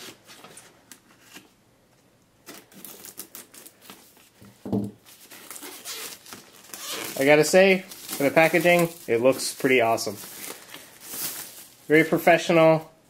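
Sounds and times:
plastic wrap crinkling and tearing: 2.4 - 4.4, 5.0 - 12.5.

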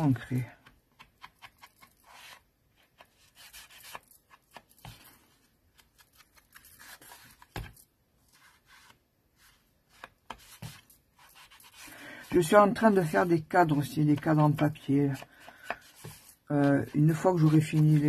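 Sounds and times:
light taps and paper handling: 0.3 - 18.0.

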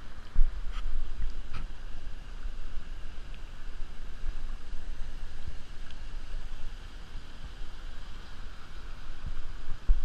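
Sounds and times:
water hissing: 0.0 - 10.0
wind buffeting microphone: 0.0 - 10.0.

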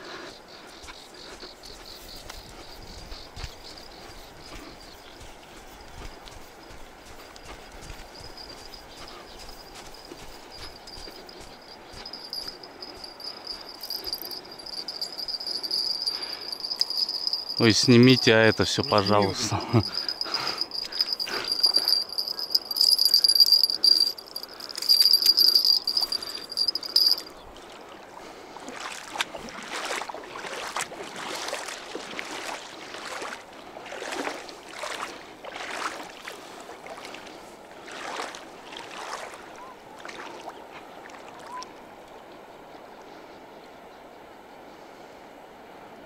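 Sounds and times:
bite-alarm bell jingling: 2.9 - 27.3
splashing steps wading in water: 28.6 - 37.2, 37.8 - 41.4.

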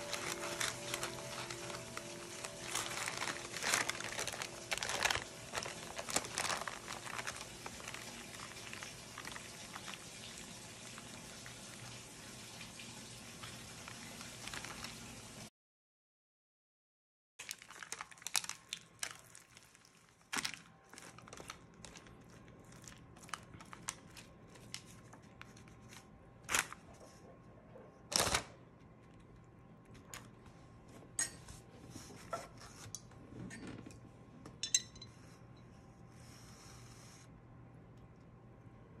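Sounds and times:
parchment paper rustling: 0.0 - 12.0, 13.4 - 15.2, 17.4 - 32.8
low steady hum: 0.0 - 15.4, 18.2 - 39.0
ringing clink: 34.6 - 35.1.

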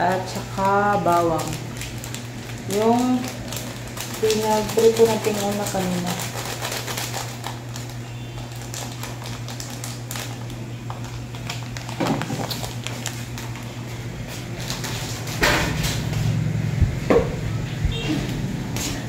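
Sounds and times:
plastic packet crinkling: 0.0 - 13.9
steady low hum: 0.0 - 19.0.

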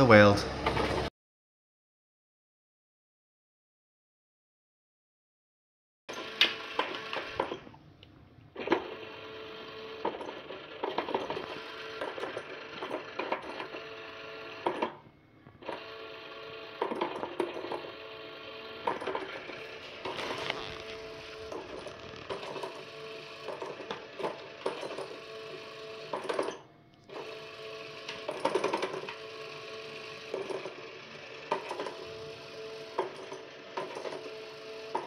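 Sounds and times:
toy motor whirring: 15.7 - 26.5.

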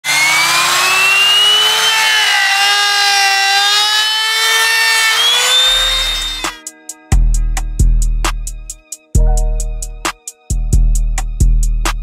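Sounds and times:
electric router cutting wood: 0.0 - 6.6
bass-heavy music beat: 6.6 - 12.0.

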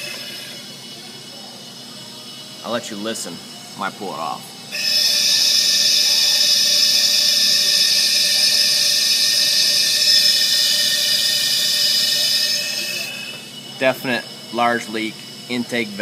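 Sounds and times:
compressed air hissing and whistling: 0.0 - 0.8, 4.7 - 16.0.

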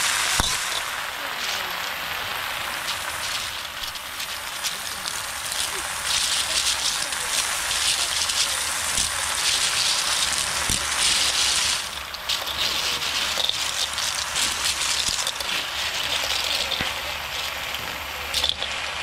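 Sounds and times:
steady hiss: 0.0 - 19.0
shells clicking in a steel wok: 0.2 - 2.0, 2.6 - 18.8.

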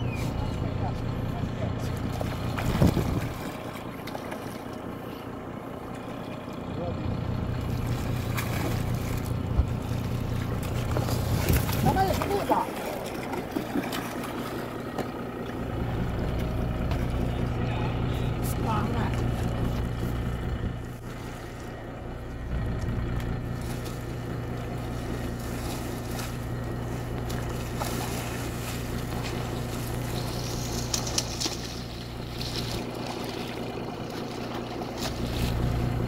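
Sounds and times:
boat engine humming: 0.0 - 36.0
fish thrashing and splashing: 2.0 - 5.1, 7.5 - 18.4, 23.3 - 36.0.

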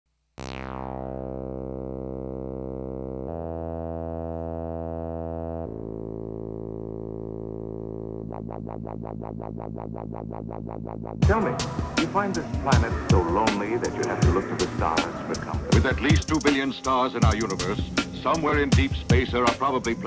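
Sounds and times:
synthesizer falling sweep: 0.4 - 15.8
synthesizer droning chords: 0.4 - 20.0
fast electronic pulsing: 7.1 - 16.6.

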